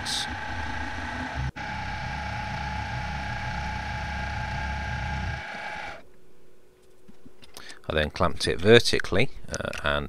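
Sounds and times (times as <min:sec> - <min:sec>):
milling machine motor whine: 0:00.0 - 0:06.0.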